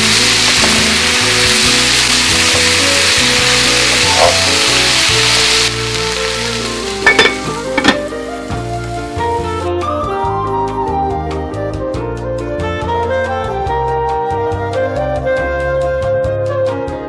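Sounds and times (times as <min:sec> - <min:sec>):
vegetables sizzling in oil: 0:00.0 - 0:09.8
background music: 0:00.0 - 0:17.0.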